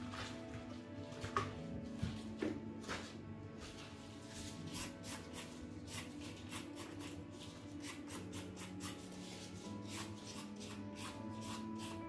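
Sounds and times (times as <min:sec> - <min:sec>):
knife scraping carrot: 0:04.4 - 0:12.0.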